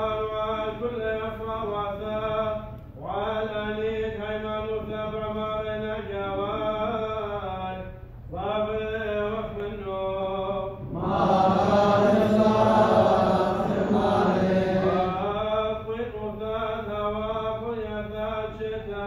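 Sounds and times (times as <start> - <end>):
lone voice chanting: 10.2 - 17.0
many voices chanting: 10.8 - 15.6.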